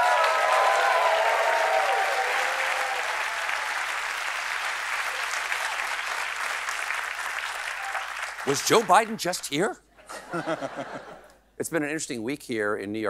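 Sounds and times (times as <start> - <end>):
voices cheering: 0.0 - 3.9, 7.5 - 9.2
audience clapping: 0.0 - 9.7.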